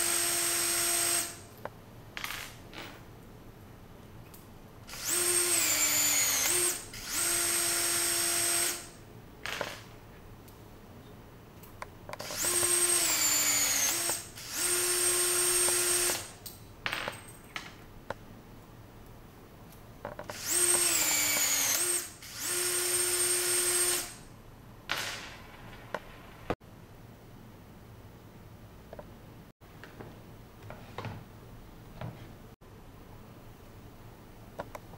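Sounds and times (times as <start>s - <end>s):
rivet tool motor whining: 12.2s - 16.3s, 20.3s - 24.2s.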